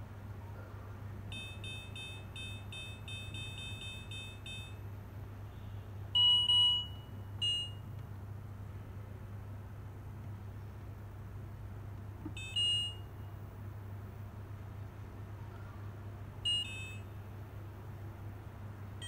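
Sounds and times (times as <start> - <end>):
steady low hum: 0.0 - 19.0
dimmer beeping: 1.3 - 4.8.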